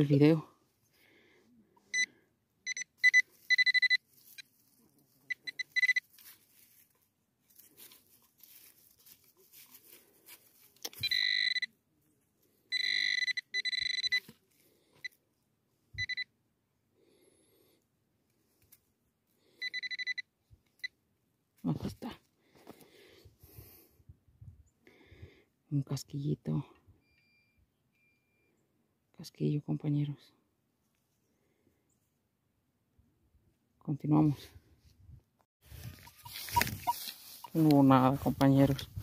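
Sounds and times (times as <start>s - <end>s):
metal detector beeping: 1.8s - 4.5s, 5.3s - 6.2s, 10.8s - 11.8s, 12.7s - 14.4s, 15.0s - 15.2s, 15.9s - 16.3s, 19.6s - 21.0s, 27.0s - 28.6s, 35.7s - 38.4s.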